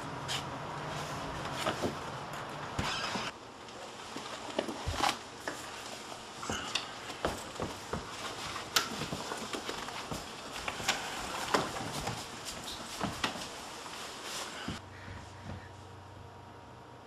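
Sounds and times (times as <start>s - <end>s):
clothing rustling: 3.2s - 15.7s
shoes scuffing on wood: 6.5s - 15.7s.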